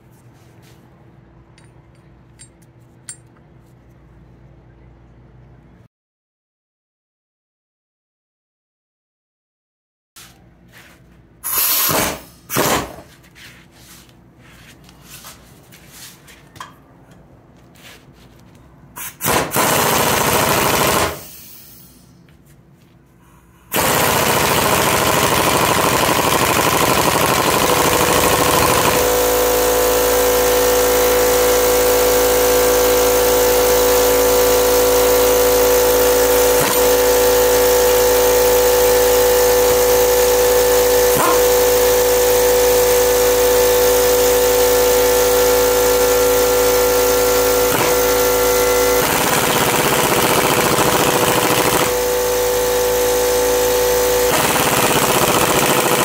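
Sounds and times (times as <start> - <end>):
power tool bursts: 11.4 - 13.0, 23.7 - 56.0
machine running with hum: 23.2 - 56.0.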